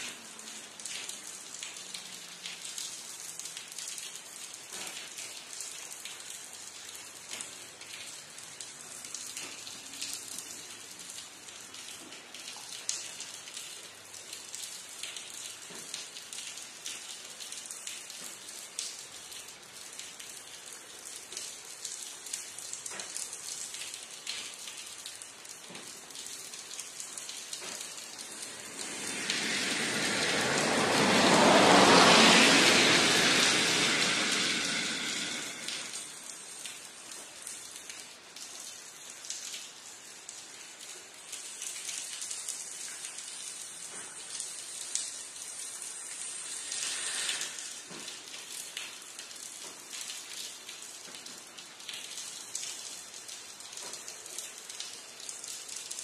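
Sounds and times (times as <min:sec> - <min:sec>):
steady rain falling: 0:00.0 - 0:56.0
loud rushing sound: 0:27.6 - 0:36.5.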